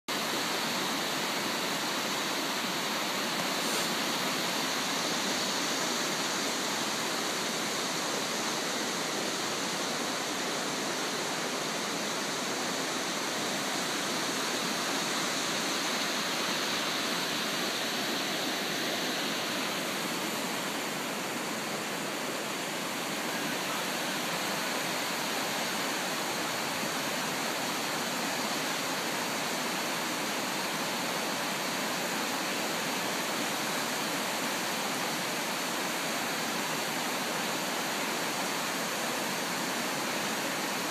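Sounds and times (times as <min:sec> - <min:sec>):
floodwater rushing: 0:00.2 - 0:40.9.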